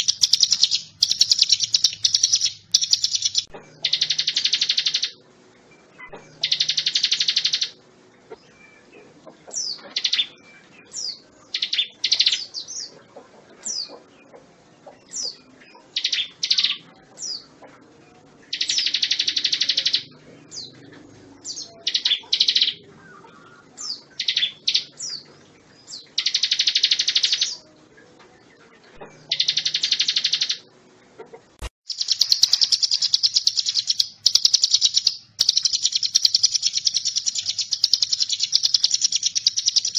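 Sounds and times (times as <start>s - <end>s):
bird singing buzzing trills: 0.0s - 5.2s, 5.8s - 7.8s, 18.1s - 30.7s, 31.9s - 39.9s.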